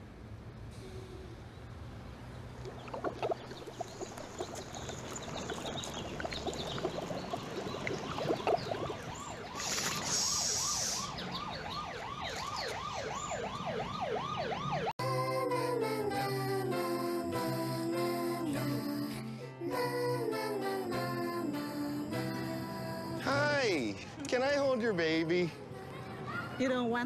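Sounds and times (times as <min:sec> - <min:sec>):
water bubbling in a bong: 0:02.5 - 0:10.1
siren rising and falling: 0:06.9 - 0:15.0
brief hiss: 0:09.6 - 0:11.1.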